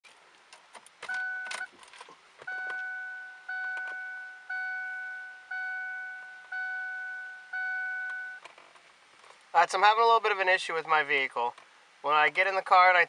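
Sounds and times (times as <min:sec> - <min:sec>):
car warning chime dinging: 0:01.0 - 0:01.7, 0:02.4 - 0:08.4.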